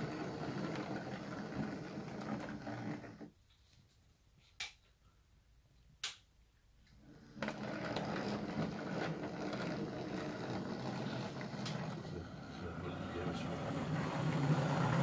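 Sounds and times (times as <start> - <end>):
model train rumbling on rails: 7.5 - 15.0.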